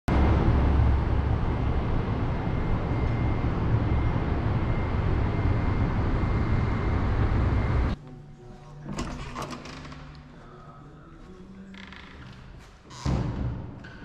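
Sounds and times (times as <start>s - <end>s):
distant city traffic: 0.1s - 8.0s.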